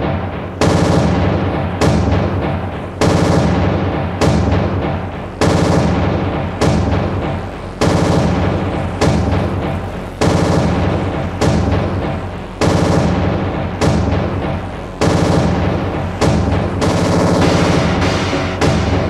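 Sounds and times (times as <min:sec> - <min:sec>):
heavy drum strikes: 0:00.0 - 0:19.0
droning chord: 0:04.8 - 0:19.0.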